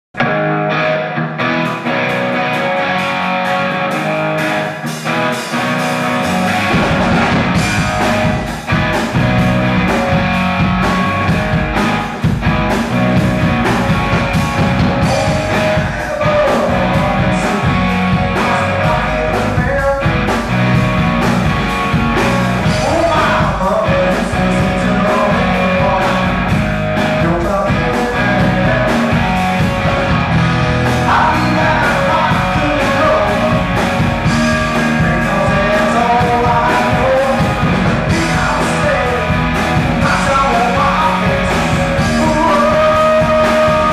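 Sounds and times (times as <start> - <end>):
bass and drums: 0.2 - 43.9
electric guitar: 0.2 - 43.9
lead vocal: 14.5 - 20.6, 22.1 - 43.9.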